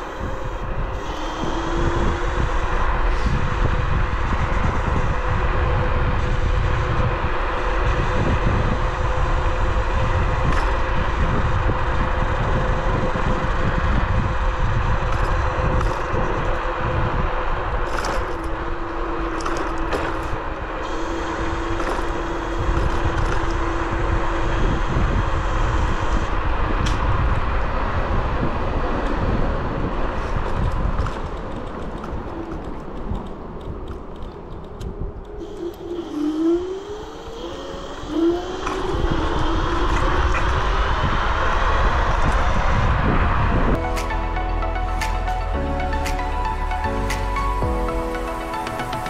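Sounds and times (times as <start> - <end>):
electric motor whine: 0.0 - 26.4
wind rushing over microphone: 0.0 - 44.4.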